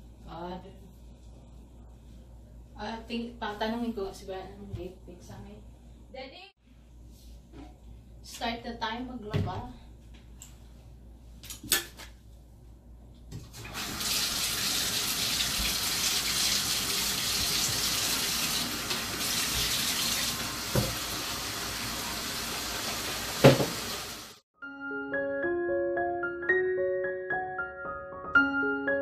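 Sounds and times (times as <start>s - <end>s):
water pouring into bathtub: 13.6s - 24.4s.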